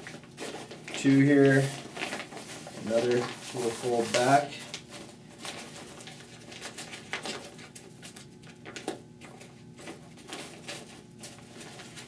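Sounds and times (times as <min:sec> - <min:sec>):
fabric rustling and crinkling: 0:00.0 - 0:08.4.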